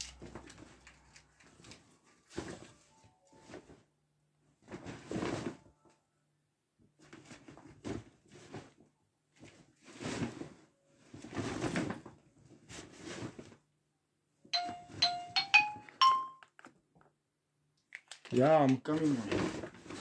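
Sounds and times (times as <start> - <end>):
rustling and handling noises: 0.0 - 6.1, 6.8 - 13.7, 18.0 - 20.0
rising electronic chime tones: 14.6 - 16.4.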